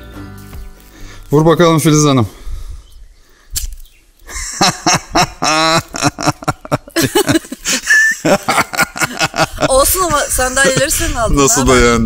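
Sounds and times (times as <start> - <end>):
people laughing: 4.3 - 11.3.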